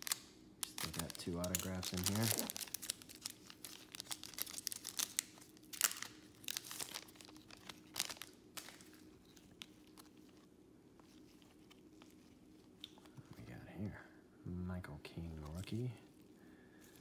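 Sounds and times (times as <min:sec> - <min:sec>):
foil wrapper crinkling: 0:00.0 - 0:13.3
cards rustling: 0:00.0 - 0:13.4.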